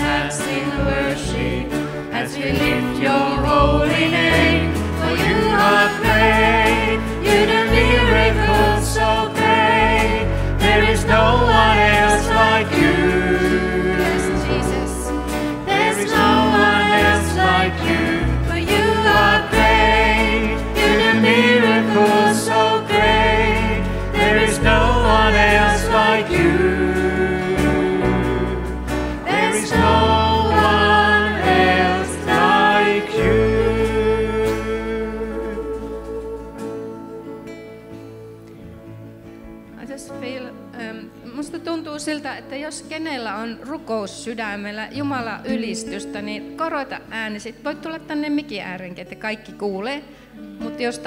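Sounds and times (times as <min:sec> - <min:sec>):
women singing: 0:00.0 - 0:37.8
keyboard: 0:00.0 - 0:47.4
acoustic guitars: 0:00.0 - 0:51.0.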